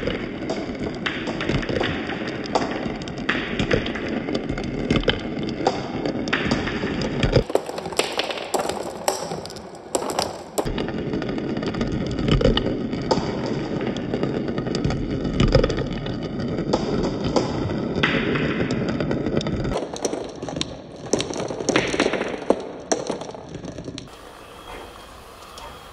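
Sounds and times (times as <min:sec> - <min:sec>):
marbles rolling in plastic bowl: 0:00.0 - 0:24.4
marbles clicking together: 0:06.4 - 0:10.7.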